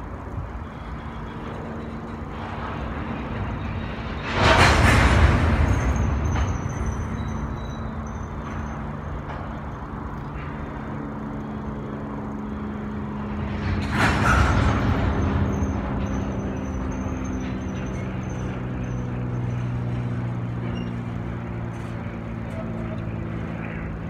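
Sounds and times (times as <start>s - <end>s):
low hum: 0.0s - 24.0s
train wheels rumbling on rails: 0.0s - 24.0s
rushing surge: 2.8s - 7.6s
faint high squeal: 5.5s - 9.8s, 14.0s - 23.0s.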